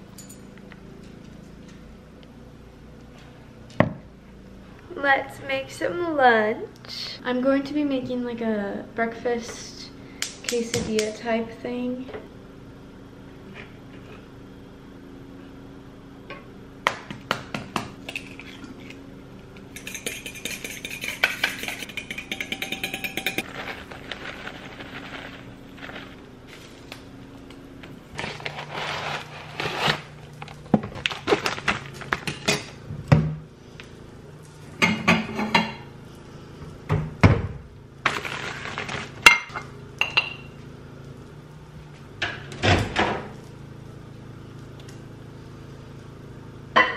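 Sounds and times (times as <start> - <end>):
steady low hum: 0.0 - 46.9
cutlery and plates clinking: 19.8 - 23.4
crinkling: 23.4 - 27.0, 28.1 - 32.5.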